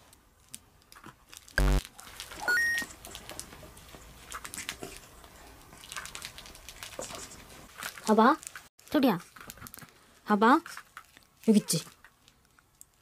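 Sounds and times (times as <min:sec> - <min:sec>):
plush toy rustling and crinkling: 0:00.0 - 0:13.0
buzzy sound effect: 0:01.6 - 0:01.8
rising beep: 0:02.4 - 0:02.9.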